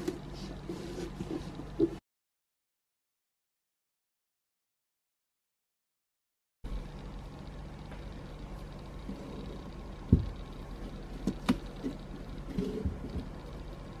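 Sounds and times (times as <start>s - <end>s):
steady low hum: 6.6s - 14.0s.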